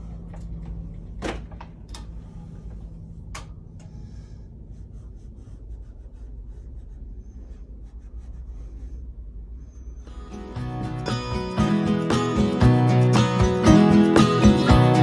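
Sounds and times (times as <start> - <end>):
low steady hum: 0.0 - 15.0
tool scratching on canvas: 4.7 - 9.0.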